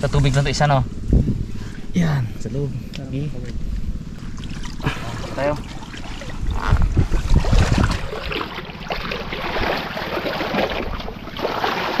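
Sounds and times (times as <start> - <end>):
wind buffeting microphone: 0.0 - 11.5
river water splashing: 4.2 - 12.0.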